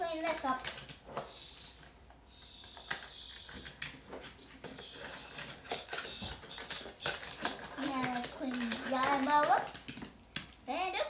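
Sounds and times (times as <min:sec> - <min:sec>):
faint hiss: 0:01.1 - 0:03.8.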